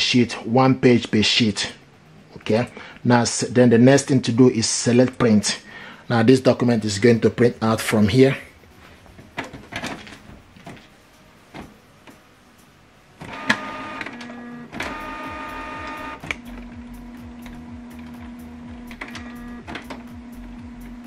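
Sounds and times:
printer humming with ticks: 8.8s - 21.0s
printer click: 13.2s - 16.7s, 17.4s - 20.1s
printer motors whirring: 13.2s - 21.0s.

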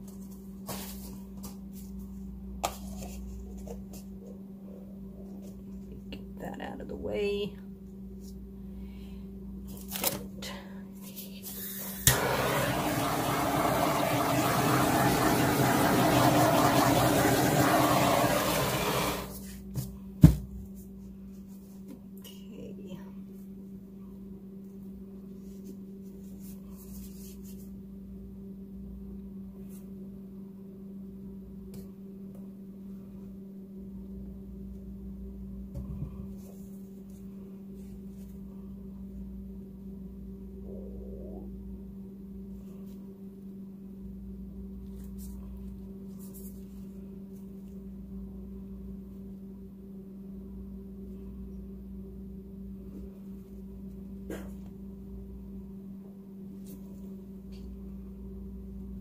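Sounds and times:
steady low hum: 0.0s - 59.0s
low rumble: 40.2s - 42.0s.

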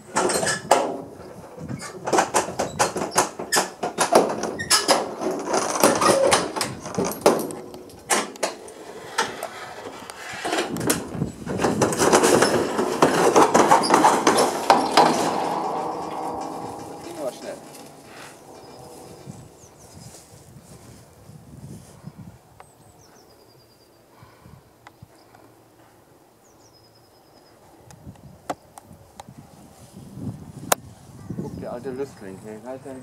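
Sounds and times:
metal trailer clanking and rattling: 0.0s - 19.9s.

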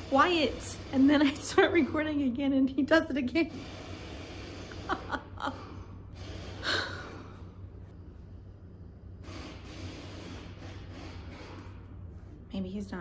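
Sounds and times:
woman laughing breathily: 4.7s - 6.0s, 6.6s - 7.5s.

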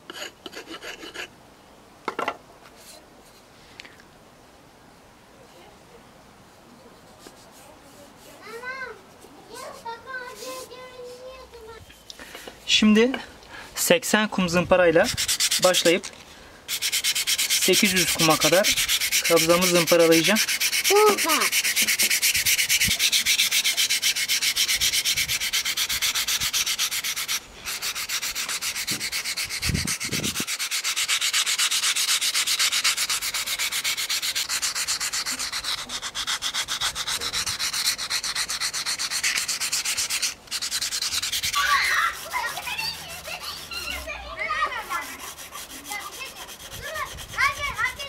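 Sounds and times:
sandpaper rasping on wood: 0.1s - 1.3s, 9.7s - 11.3s, 14.8s - 16.1s, 16.7s - 48.0s.

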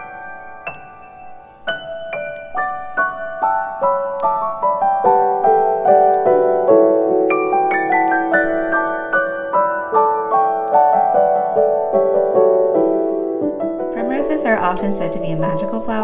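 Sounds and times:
slow piano melody: 0.0s - 16.0s.

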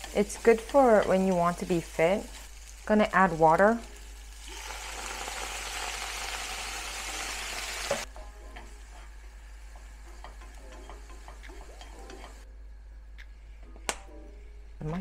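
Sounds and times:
water hissing in hot frying pan: 0.0s - 8.1s
vegetables sizzling quietly: 0.0s - 15.0s.

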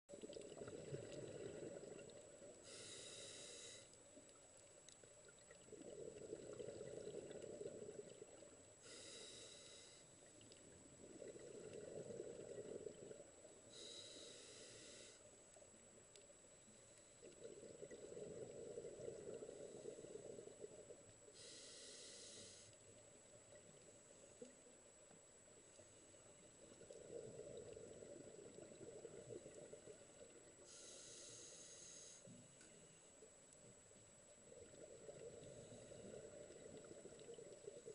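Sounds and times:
exhaled bubbles burbling: 0.1s - 2.6s, 5.4s - 8.5s, 11.0s - 13.5s, 17.3s - 20.9s, 26.6s - 30.6s
diver breathing through regulator: 2.6s - 3.9s, 8.8s - 10.1s, 13.7s - 15.2s, 21.4s - 22.7s, 30.7s - 32.3s.

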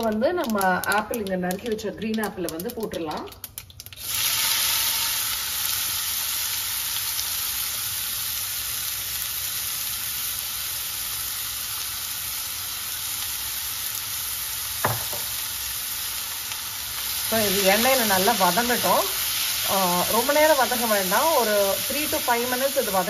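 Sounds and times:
apple sizzling in hot oil: 0.0s - 23.0s
sharp knock: 14.8s - 15.3s.

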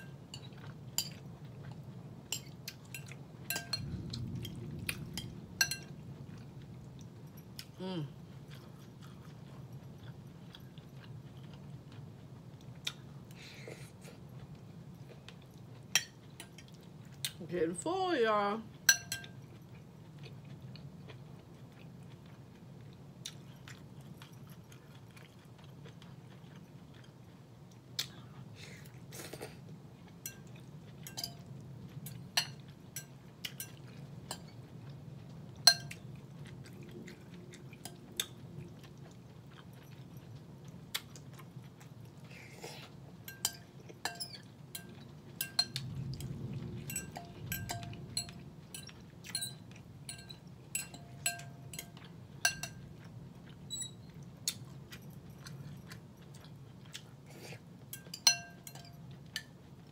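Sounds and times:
chewing: 0.0s - 17.4s, 18.7s - 59.9s
fork clinking on glass bowl: 2.3s - 3.9s, 5.2s - 5.9s, 18.9s - 19.4s, 30.2s - 31.5s, 32.4s - 34.6s, 35.6s - 36.0s, 43.3s - 45.8s, 46.9s - 53.0s, 57.9s - 59.5s
low rumble: 3.6s - 7.3s, 45.8s - 48.7s.

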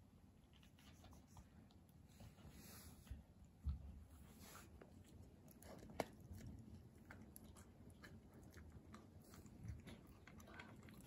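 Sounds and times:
puppy gnawing a chew treat: 4.4s - 11.0s.

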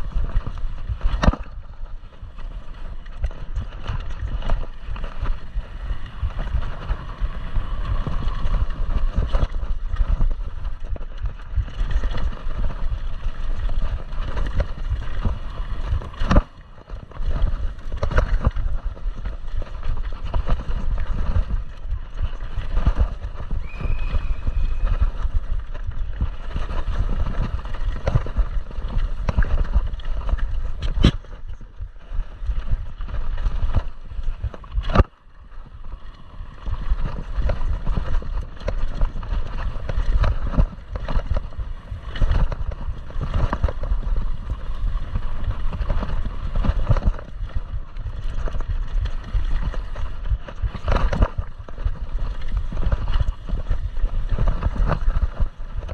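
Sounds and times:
bike tyres clattering over rocks: 0.0s - 55.9s.

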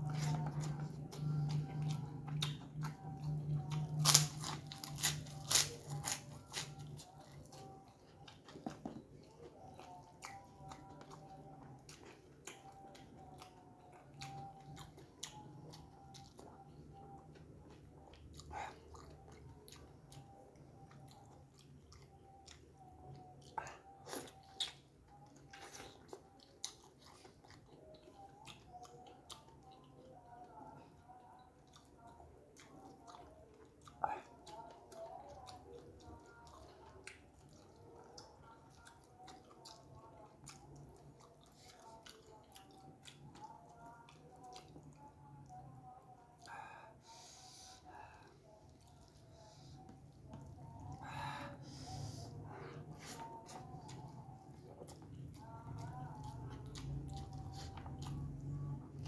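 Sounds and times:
mouth chewing: 0.0s - 59.0s
crunching crisp cracker: 3.9s - 7.8s.

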